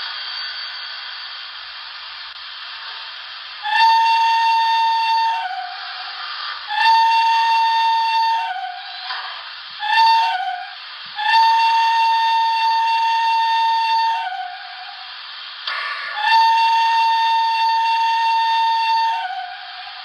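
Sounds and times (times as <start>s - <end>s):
steady steam hiss: 0.0s - 20.0s
model train steam whistle: 3.6s - 20.0s.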